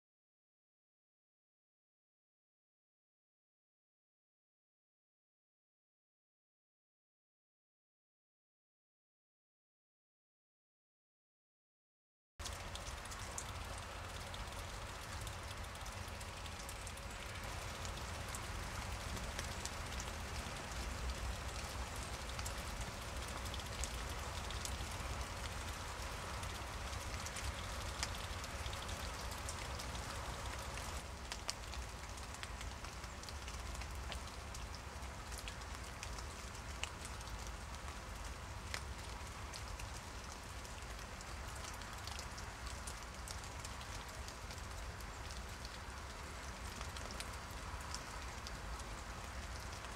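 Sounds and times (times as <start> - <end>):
rain drops ticking and dripping: 12.4 - 49.9.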